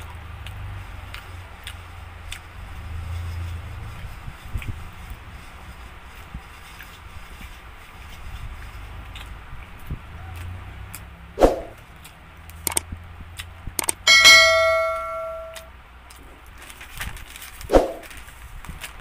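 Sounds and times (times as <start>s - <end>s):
metallic clang: 13.8s - 15.7s.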